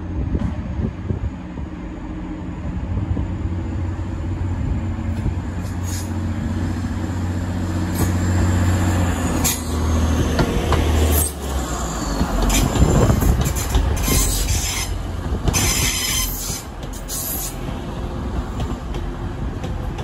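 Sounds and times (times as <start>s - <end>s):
diesel train passing: 0.0s - 20.0s
wheels clicking over rail joints: 9.4s - 17.8s.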